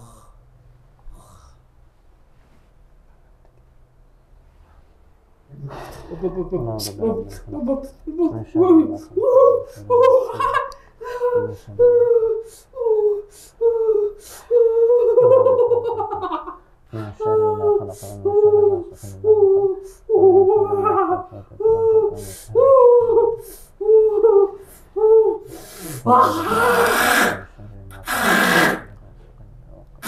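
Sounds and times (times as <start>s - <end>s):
person making pitched vocal sounds: 5.5s - 16.3s, 16.9s - 30.0s.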